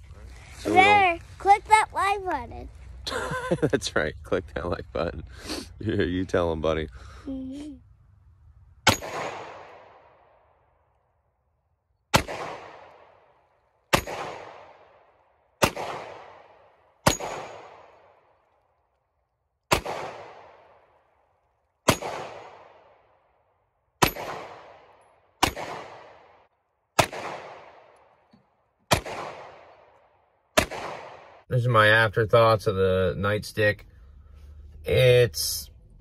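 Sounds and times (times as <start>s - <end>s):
gunshots with echo: 8.8s - 10.3s, 12.1s - 13.2s, 13.9s - 15.0s, 15.6s - 18.2s, 19.7s - 20.8s, 21.9s - 22.9s, 24.0s - 26.4s, 27.0s - 27.9s, 28.9s - 29.9s, 30.6s - 31.5s.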